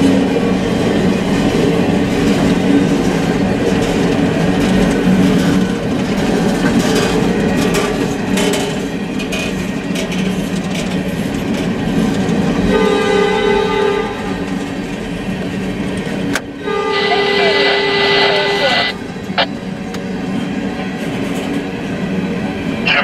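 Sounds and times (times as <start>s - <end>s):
steel wheels rumbling on rail: 0.0s - 23.0s
wheels clacking over rail joints: 0.9s - 17.1s
train horn: 12.7s - 14.6s, 16.6s - 19.0s.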